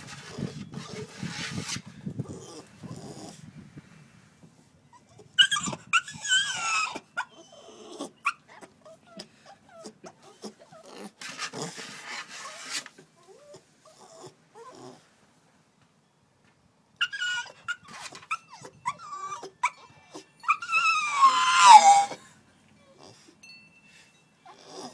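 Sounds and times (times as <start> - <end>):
puppy whining: 0.0 - 3.4, 4.9 - 15.0, 17.0 - 23.4, 24.4 - 24.9
puppy whimpering: 2.2 - 3.3, 4.9 - 11.8, 13.2 - 15.0, 17.0 - 22.2, 24.5 - 24.9.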